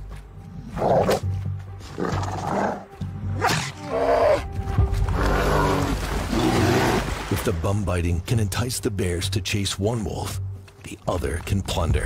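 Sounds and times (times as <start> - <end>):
background music: 0.0 - 12.0
bear growling: 0.6 - 4.5, 5.1 - 7.1.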